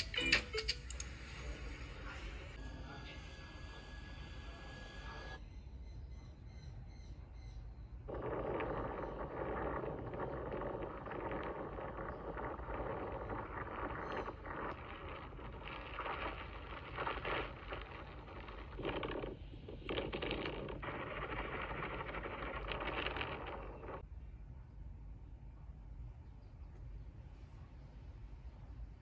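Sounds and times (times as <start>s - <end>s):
waves and wind through small speaker: 8.1s - 24.0s.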